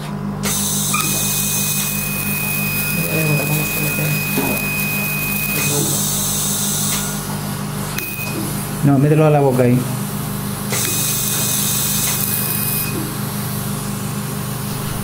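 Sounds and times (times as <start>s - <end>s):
laser emission tone: 0.5s - 7.2s, 8.0s - 8.4s, 10.7s - 13.0s, 14.6s - 15.0s
low hum: 14.6s - 15.0s.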